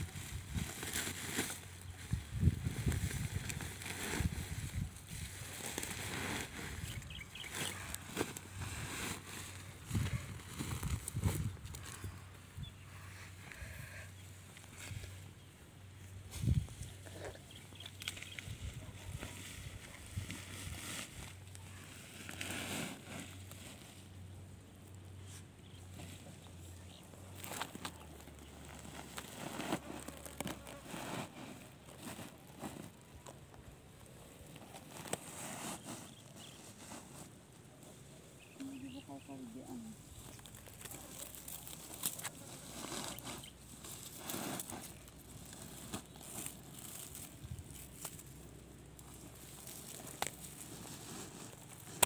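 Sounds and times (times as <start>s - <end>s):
sack and foliage rustling: 0.0s - 12.2s, 25.2s - 37.9s, 38.9s - 52.0s.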